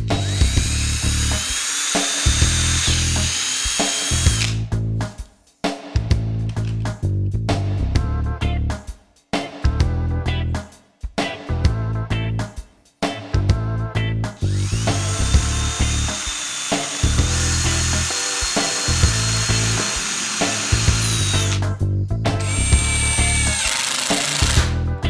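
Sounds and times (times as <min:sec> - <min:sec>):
cordless drill boring into wood: 0:00.2 - 0:04.6, 0:14.5 - 0:21.6, 0:22.4 - 0:24.7
background music with a beat: 0:03.4 - 0:25.0.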